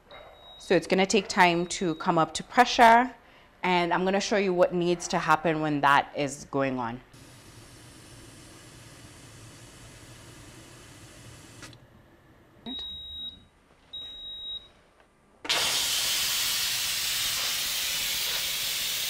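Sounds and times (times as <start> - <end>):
steam hissing from valve: 7.2 - 11.7, 15.5 - 19.0
pressure cooker beeping: 12.7 - 13.4.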